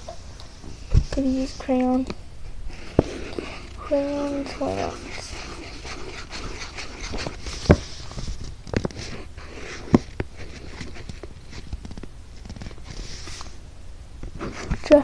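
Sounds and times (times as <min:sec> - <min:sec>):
crayon scratching on paper: 0:02.7 - 0:08.3, 0:08.9 - 0:11.6.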